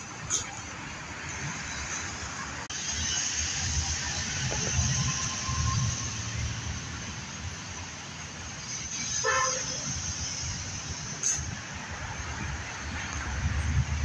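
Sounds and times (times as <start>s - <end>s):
low rumble of street traffic: 0.0s - 14.0s
car horn toot: 9.2s - 9.8s.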